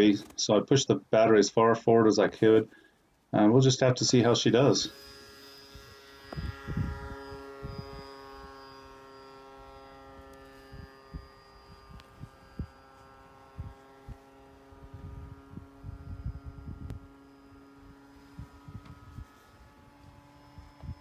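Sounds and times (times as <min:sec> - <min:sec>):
model plane electric motor humming: 0:04.6 - 0:21.0.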